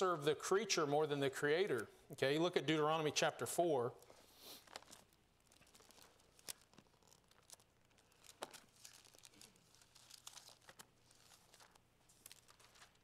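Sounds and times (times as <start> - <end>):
pages being turned: 4.0 - 13.0.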